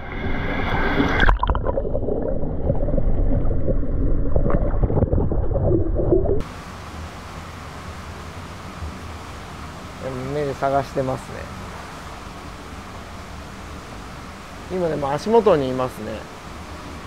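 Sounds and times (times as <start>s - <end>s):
muffled underwater bubbling: 1.0s - 6.4s.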